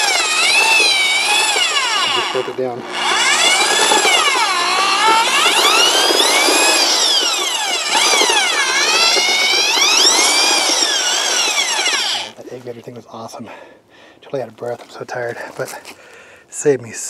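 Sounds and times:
electric drill motor whine: 0.0 - 12.4
paddle mixing wet concrete: 0.0 - 12.9.

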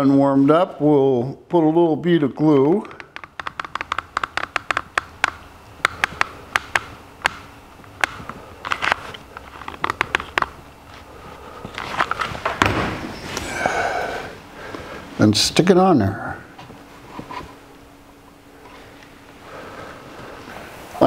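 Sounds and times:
rustling and scraping of wood: 8.6 - 13.5.

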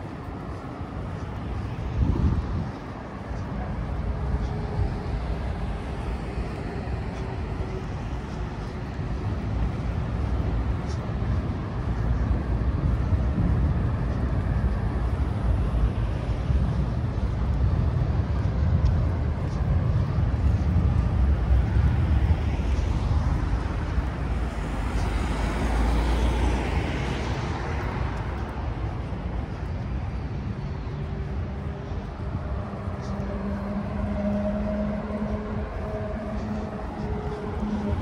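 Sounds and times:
city traffic rumble: 0.0 - 38.0.

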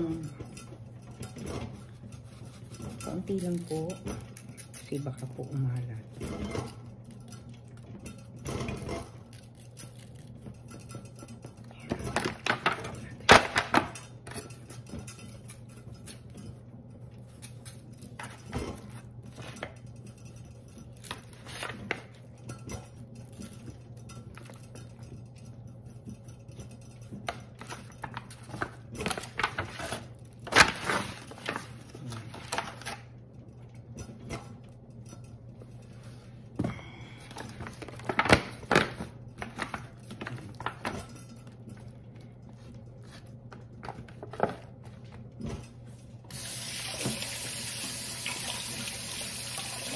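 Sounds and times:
low steady hum: 0.0 - 49.9
foil pan crinkling and knocking: 27.4 - 33.1, 37.4 - 41.2.

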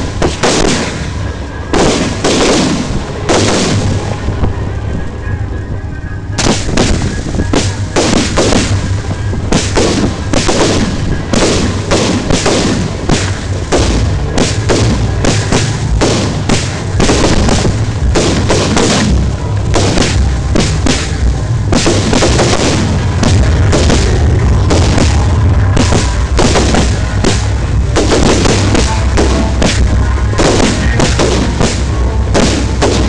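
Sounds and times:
fireworks bangs: 0.0 - 33.0
low rumble: 0.0 - 33.0.

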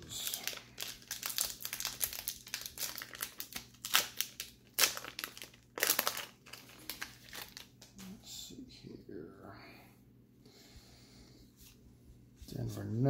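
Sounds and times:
foil wrapper crinkling and tearing: 0.1 - 7.9.

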